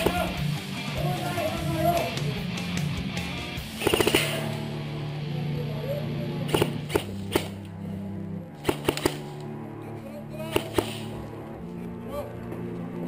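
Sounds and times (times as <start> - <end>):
airsoft guns firing: 0.0 - 0.5, 3.6 - 4.6, 6.5 - 7.7, 8.6 - 9.4, 10.5 - 11.2
background music with low drone: 0.0 - 13.0.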